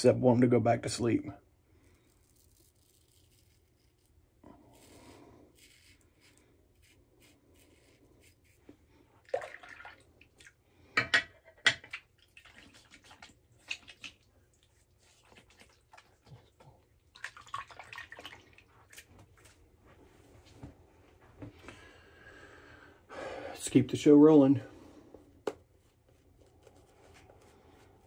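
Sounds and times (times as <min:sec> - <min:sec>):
water splashing: 0:09.2 - 0:10.5, 0:17.1 - 0:19.0.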